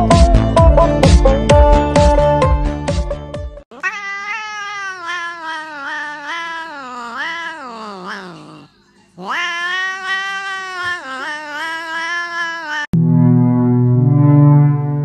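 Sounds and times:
cat yowling: 0:03.7 - 0:13.0.

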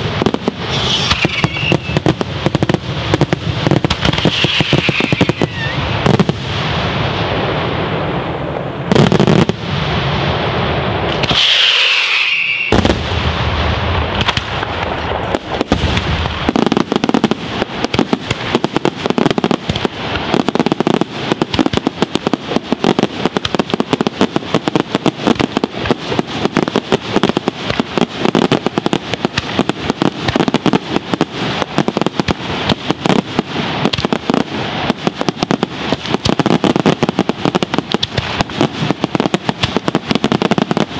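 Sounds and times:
firework crackling: 0:00.0 - 0:40.9
fireworks bangs: 0:00.0 - 0:40.9
shrill firework whistle: 0:00.6 - 0:02.1, 0:04.2 - 0:06.0, 0:11.2 - 0:13.0.

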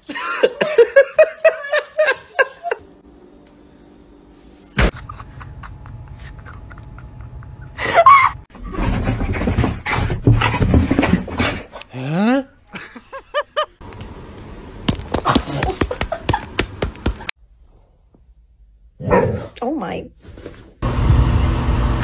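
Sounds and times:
person laughing: 0:00.0 - 0:02.8, 0:04.8 - 0:08.5, 0:12.0 - 0:13.8, 0:15.2 - 0:17.3.

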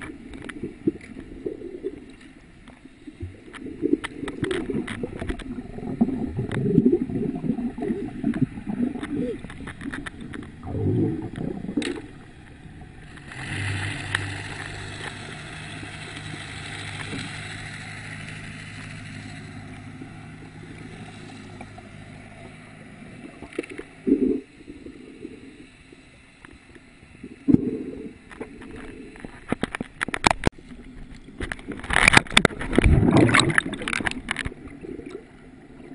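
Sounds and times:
muffled underwater boat engine hum: 0:00.0 - 0:35.9
hiss of water: 0:11.0 - 0:29.5.

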